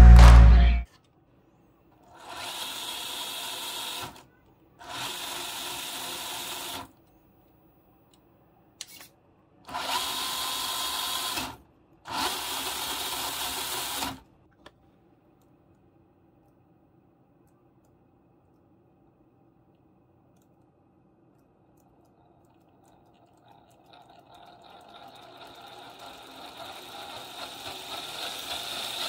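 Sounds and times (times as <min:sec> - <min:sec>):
toy car motor whining: 0:02.1 - 0:07.0, 0:09.7 - 0:14.2, 0:24.8 - 0:29.0
click: 0:14.5 - 0:14.8, 0:17.4 - 0:18.7, 0:19.7 - 0:20.7.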